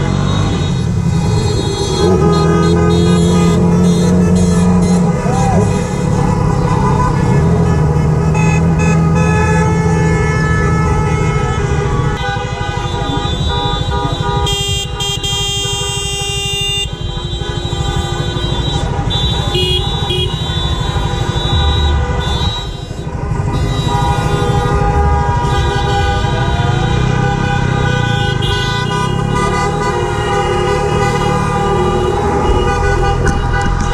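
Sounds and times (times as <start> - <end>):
car horns honking: 0.0 - 33.9
loud horn blast: 0.0 - 33.9
motorcycle engine: 0.0 - 33.9.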